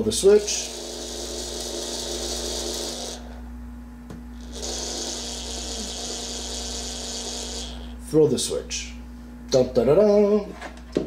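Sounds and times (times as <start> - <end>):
point motor whirring: 0.2 - 3.4, 4.4 - 8.1.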